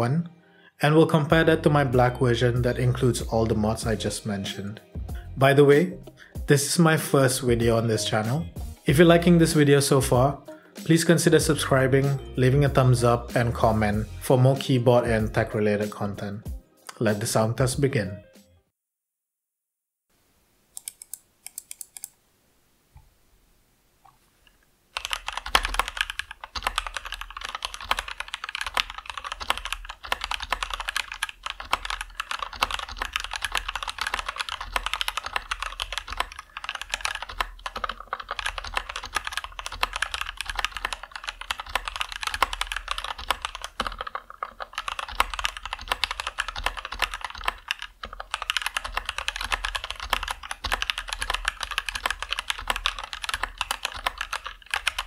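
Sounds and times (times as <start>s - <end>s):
mechanical keyboard typing: 20.8s - 22.1s, 25.0s - 55.0s.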